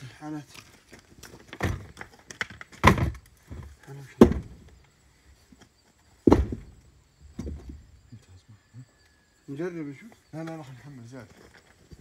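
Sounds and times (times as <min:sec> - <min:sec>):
rocks thudding down: 0:01.2 - 0:04.7, 0:06.2 - 0:07.9.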